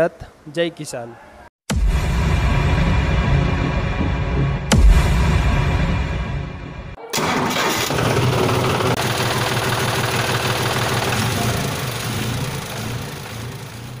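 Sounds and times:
engine running: 0:07.2 - 0:14.0.

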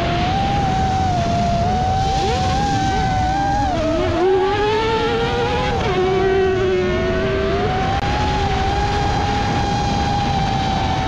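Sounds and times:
buggy engine racing: 0:00.0 - 0:11.0
drone motor whine: 0:00.0 - 0:11.0.

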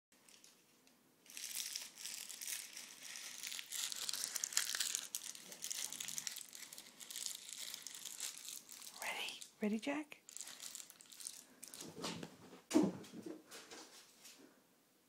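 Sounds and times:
crinkling and rustling: 0:00.1 - 0:14.4.

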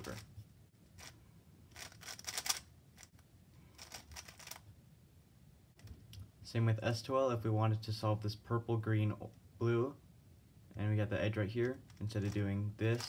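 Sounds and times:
plastic puzzle clicking: 0:01.7 - 0:03.2.

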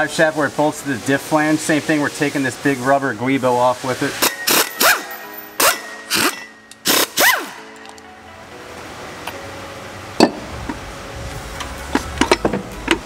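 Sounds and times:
background music: 0:00.0 - 0:13.0
impact wrench bursts: 0:04.0 - 0:07.7.

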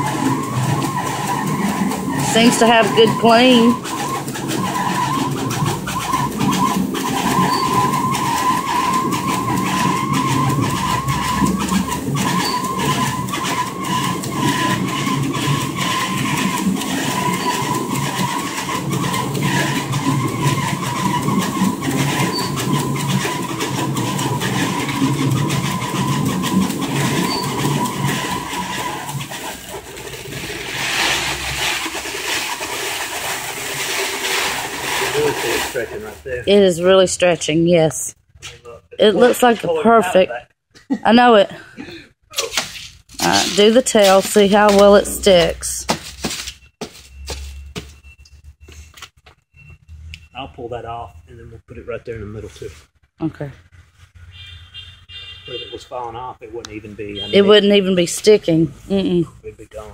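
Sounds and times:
stretch wrapper whining: 0:00.0 - 0:36.7
rough high machine noise: 0:00.0 - 0:40.3, 0:42.4 - 0:48.0, 0:56.5 - 0:59.9.

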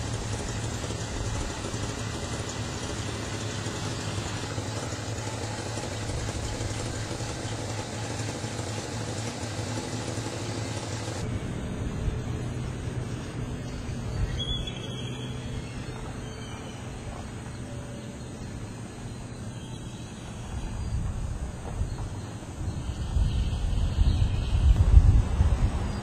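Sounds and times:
faint high chirp: 0:13.6 - 0:21.0.

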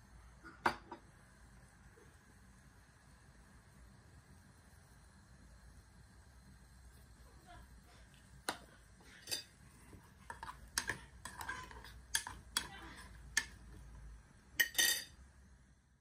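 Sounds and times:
metal spoon knocking against pan: 0:12.1 - 0:13.6.

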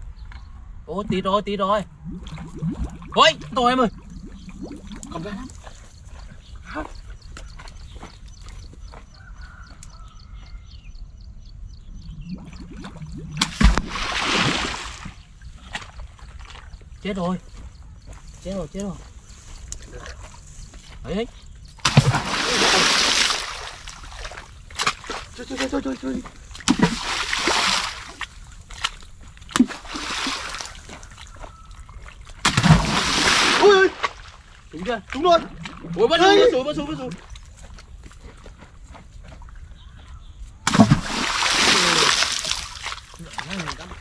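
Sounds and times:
water spraying and splashing: 0:12.4 - 0:16.6, 0:21.8 - 0:29.0, 0:29.6 - 0:31.4, 0:32.0 - 0:36.0, 0:40.7 - 0:44.0
heavy splash in a pond: 0:12.5 - 0:15.2, 0:21.8 - 0:25.3, 0:26.6 - 0:28.4, 0:29.5 - 0:31.2, 0:32.4 - 0:34.5, 0:40.7 - 0:44.0.

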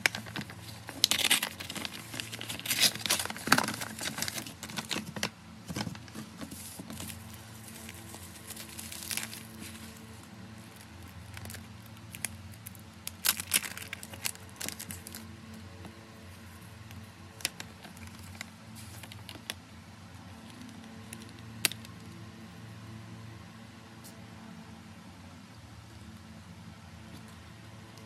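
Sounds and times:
bubble wrap crinkling: 0:00.0 - 0:15.3, 0:16.3 - 0:19.6.

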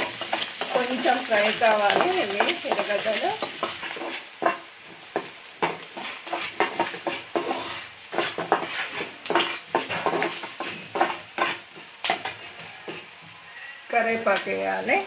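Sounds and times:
onions sizzling in oil: 0:00.0 - 0:15.0
ladle scraping a pan: 0:01.8 - 0:13.1.

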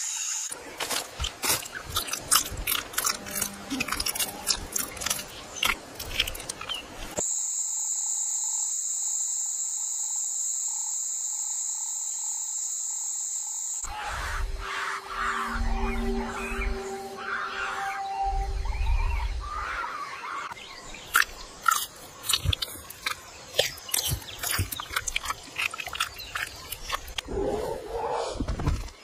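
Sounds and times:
insect drone: 0:00.0 - 0:28.3
crunchy chewing: 0:00.6 - 0:07.2, 0:21.0 - 0:27.7.

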